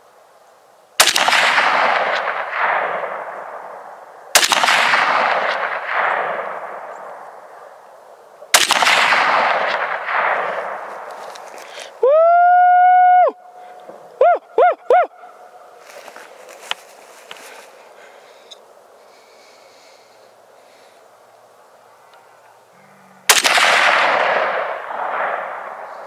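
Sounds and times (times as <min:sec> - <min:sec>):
rifle shots with echo: 0:01.0 - 0:07.8, 0:08.5 - 0:11.1, 0:23.3 - 0:26.0.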